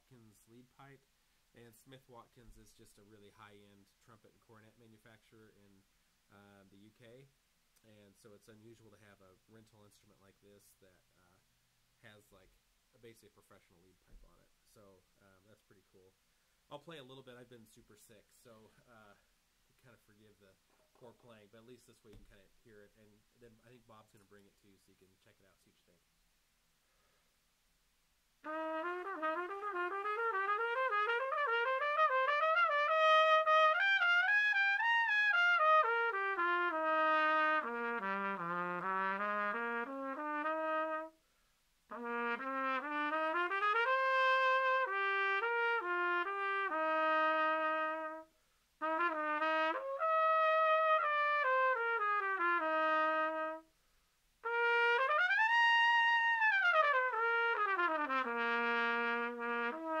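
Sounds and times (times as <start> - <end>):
solo cornet playing: 28.4 - 41.2, 41.9 - 53.7, 54.4 - 60.0.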